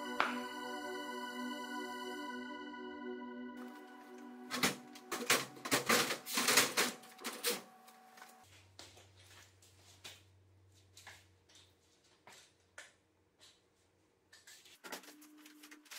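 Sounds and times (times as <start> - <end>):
background music: 0.0 - 7.2.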